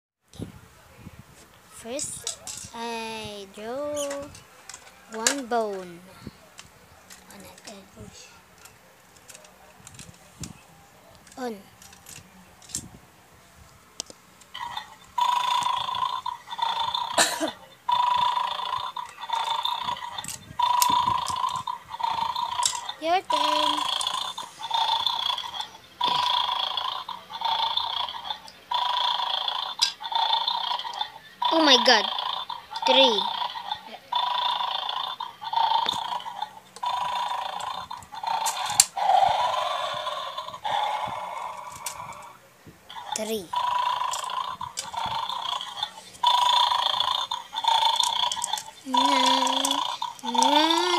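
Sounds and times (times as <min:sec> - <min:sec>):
toy snoring through small speaker: 0:14.5 - 0:50.9
sharp plastic clicks: 0:42.9 - 0:50.9.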